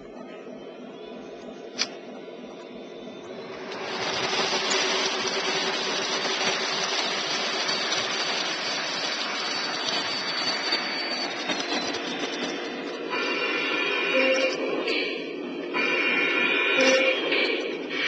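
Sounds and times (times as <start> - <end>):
steady hum: 0.0 - 9.7
model train wheels on rails: 3.2 - 15.2.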